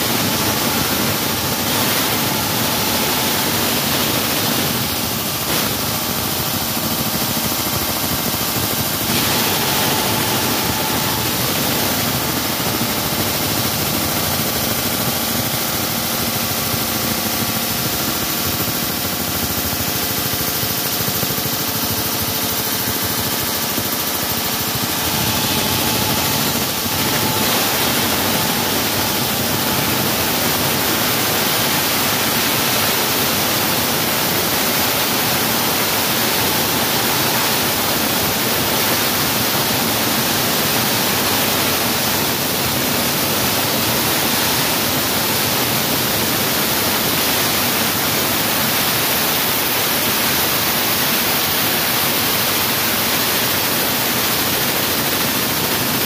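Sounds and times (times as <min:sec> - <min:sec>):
wall saw cutting concrete: 0:24.4 - 0:33.2.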